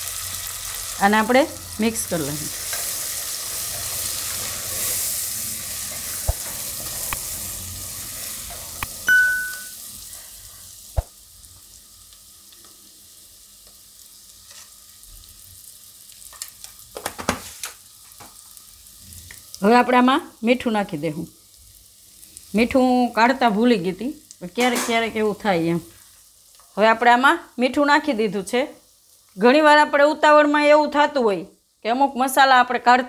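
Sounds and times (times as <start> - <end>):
onions sizzling in oil: 0.0 - 33.0
short ringing ding: 9.1 - 9.8.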